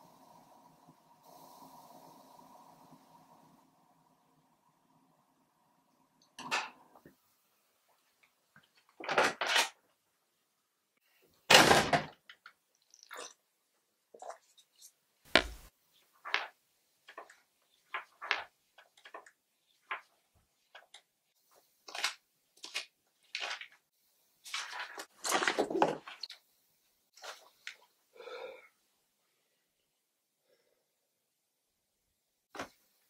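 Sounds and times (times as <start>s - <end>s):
book pages rustling: 21.8s - 23.8s, 24.4s - 26.4s.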